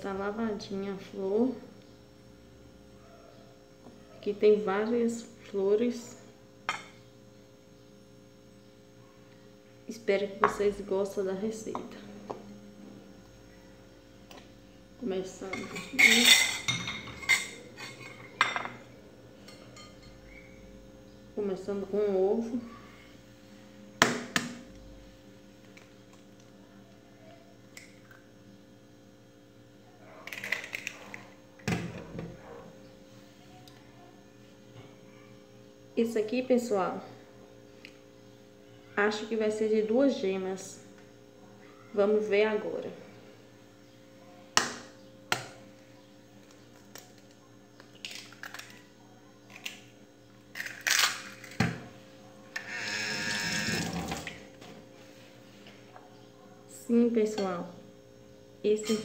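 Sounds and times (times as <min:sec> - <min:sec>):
eggshell cracking: 0:46.8 - 0:48.8, 0:50.5 - 0:51.6.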